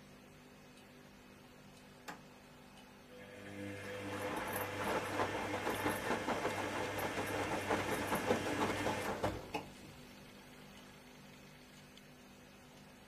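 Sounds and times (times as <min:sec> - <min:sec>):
washing machine low hum: 0:00.0 - 0:13.0
water swishing in washing machine: 0:03.4 - 0:09.9.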